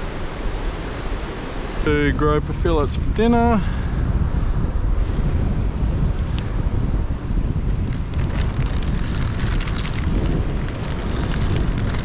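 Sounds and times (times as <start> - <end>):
wind buffeting microphone: 0.0 - 12.0
sea washing across rocks: 7.9 - 12.0.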